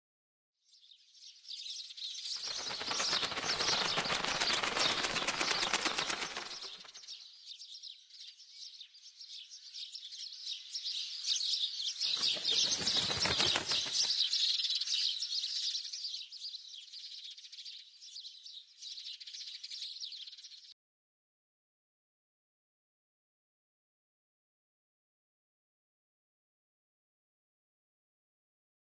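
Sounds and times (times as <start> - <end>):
small birds twittering: 0.7 - 20.7
wings flapping: 2.4 - 7.1, 12.1 - 14.5.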